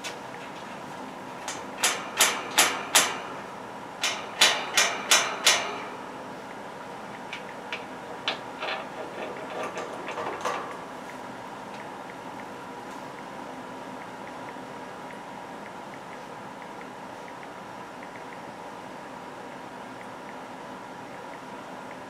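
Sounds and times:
steady low hum: 0.0s - 22.0s
faint clicks and taps: 6.5s - 8.8s, 9.8s - 13.3s, 14.0s - 18.5s.

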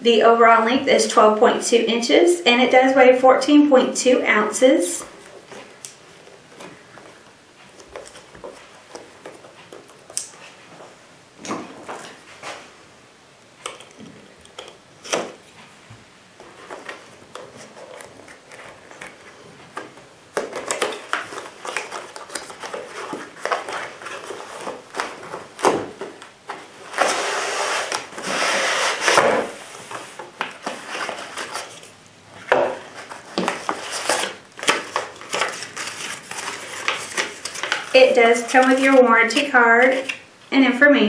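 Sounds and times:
paper rustling: 16.4s - 31.9s, 32.8s - 40.2s
cardboard sliding and rustling: 20.6s - 31.8s, 32.8s - 39.0s.

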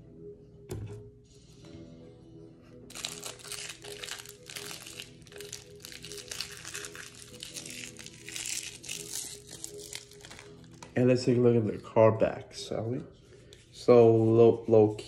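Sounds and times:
plastic wrap crinkling and tearing: 2.9s - 11.0s.

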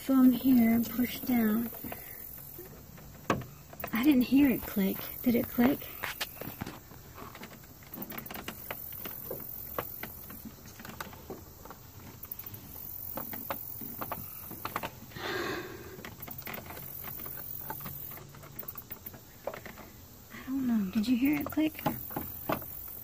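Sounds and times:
scraping rustle: 0.0s - 15.2s.

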